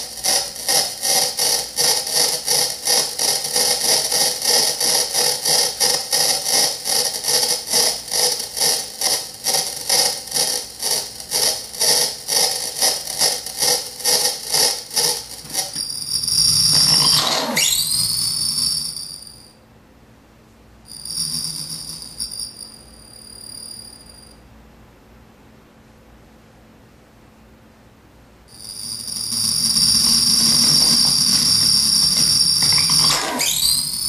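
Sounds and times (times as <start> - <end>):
glitched electronic pulsing: 0.0 - 19.4, 20.9 - 22.6, 28.5 - 34.0
electronic whistle-like tone: 0.0 - 19.6, 20.9 - 24.4, 28.5 - 34.0.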